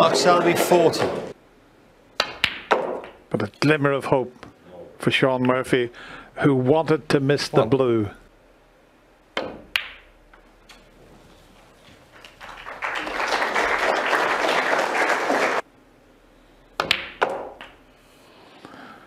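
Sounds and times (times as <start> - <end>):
snooker balls clicking: 2.2 - 3.2, 16.8 - 17.8
audience applauding: 12.1 - 15.6.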